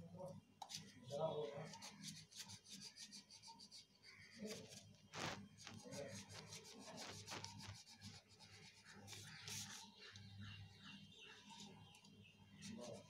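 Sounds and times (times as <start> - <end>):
colouring strokes on paper: 1.6 - 10.3.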